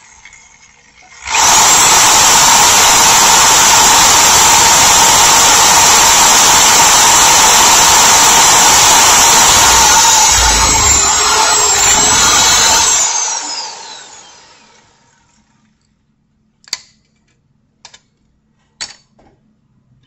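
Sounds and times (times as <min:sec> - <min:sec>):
electric drill boring: 0:00.0 - 0:15.2.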